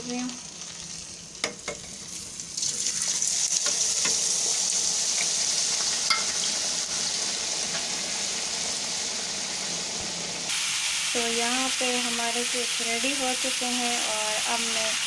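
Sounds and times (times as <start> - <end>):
oil sizzling loudly: 0.0 - 15.0
metal clinking against pan: 6.1 - 6.3.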